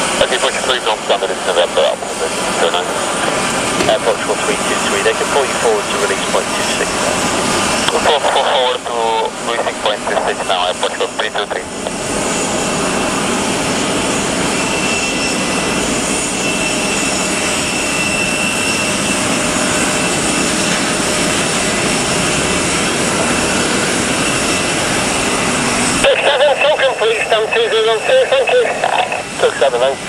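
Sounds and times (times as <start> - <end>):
jet engines running: 0.0 - 30.0
radio speech: 0.2 - 7.2, 7.8 - 12.0, 26.0 - 30.0.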